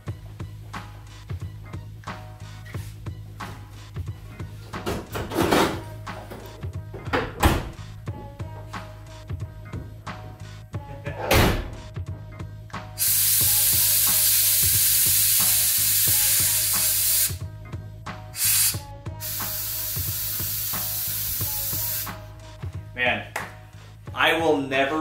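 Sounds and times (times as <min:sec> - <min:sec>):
faint music: 0:00.0 - 0:25.0
air hissing from suspension: 0:13.0 - 0:17.4, 0:18.3 - 0:22.3.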